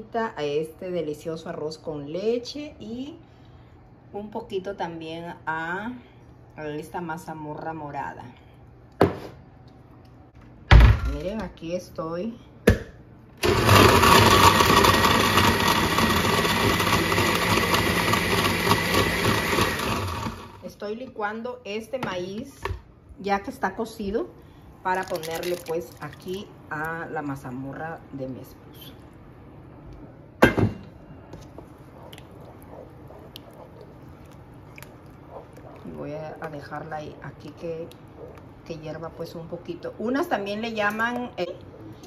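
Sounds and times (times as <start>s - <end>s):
kitchen blender running: 13.4s - 20.6s.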